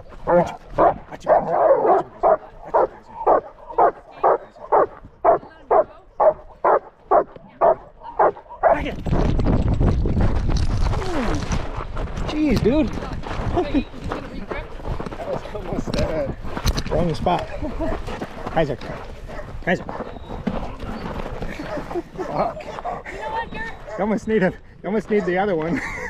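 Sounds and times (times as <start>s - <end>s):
dog barking: 0.3s - 8.8s, 18.9s - 20.2s, 21.6s - 23.1s, 23.8s - 24.2s, 25.1s - 25.4s.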